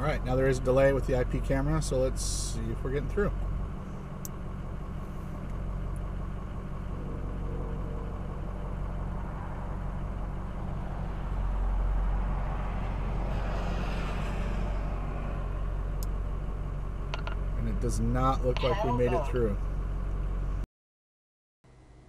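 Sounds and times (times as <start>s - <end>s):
vehicle engine idling: 0.0s - 20.6s
rushing sound: 12.1s - 16.0s.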